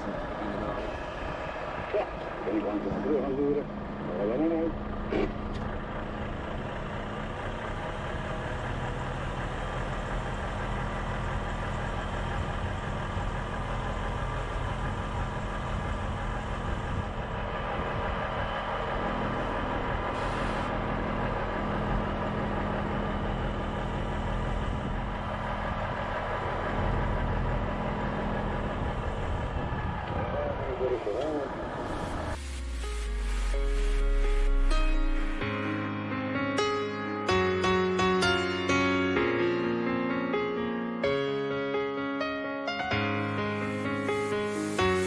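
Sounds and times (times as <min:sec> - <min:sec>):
road noise: 0:00.0 - 0:35.8, 0:43.0 - 0:45.0
truck diesel engine running: 0:00.0 - 0:35.8
short air hiss: 0:43.7 - 0:45.0.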